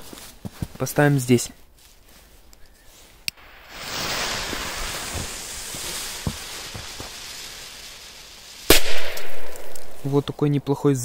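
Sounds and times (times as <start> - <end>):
firecracker fuse hissing: 3.3 - 10.2.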